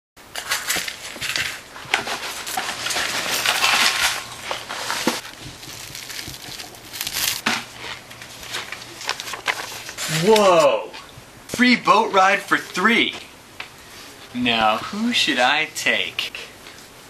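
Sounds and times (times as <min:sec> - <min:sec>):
dry cereal rattling: 0:00.3 - 0:10.2
plastic packet crinkling: 0:02.2 - 0:10.1
packet tearing open: 0:05.1 - 0:07.4.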